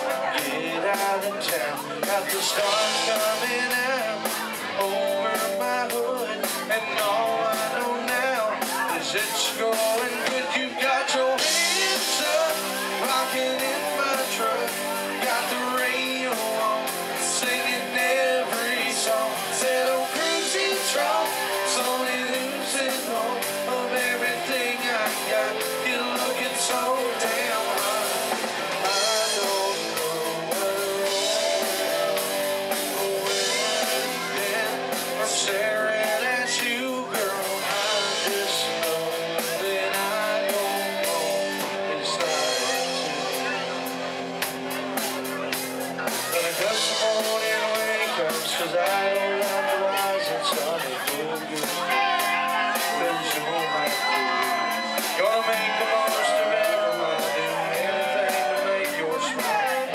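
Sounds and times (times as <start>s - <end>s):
drum kit with cymbals: 0.0s - 59.9s
electric bass: 0.0s - 59.9s
electric guitars: 0.0s - 59.9s
person singing: 0.0s - 59.9s.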